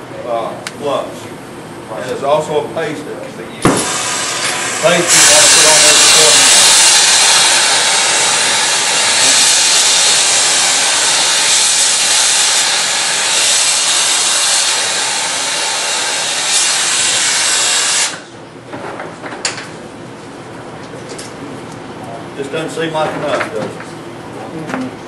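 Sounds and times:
torch flame hissing: 0:03.7 - 0:18.3.

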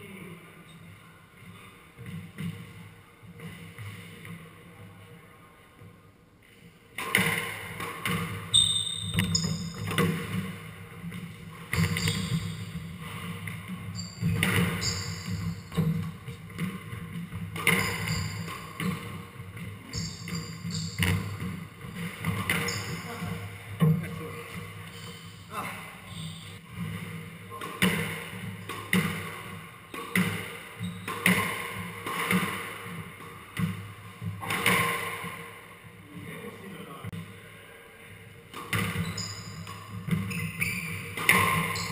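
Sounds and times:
shoes squeaking on wooden floor: 0:08.5 - 0:10.1, 0:11.7 - 0:13.2, 0:13.9 - 0:24.1, 0:38.8 - 0:41.9
squash racket striking ball: 0:09.1 - 0:23.5, 0:27.6 - 0:35.5, 0:41.0 - 0:41.9
squash ball cracking off walls: 0:27.7 - 0:33.8.

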